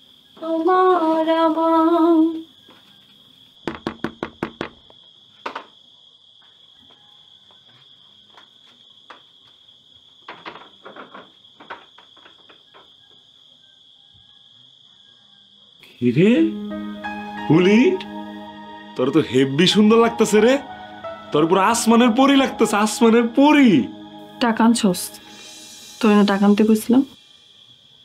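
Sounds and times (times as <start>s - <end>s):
crickets chirring: 0.0s - 28.0s
knocks on wooden door: 3.6s - 4.8s.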